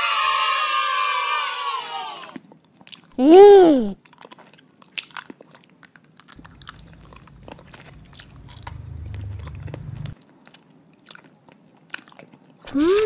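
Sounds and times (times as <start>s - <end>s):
low rumble: 6.5s - 10.2s.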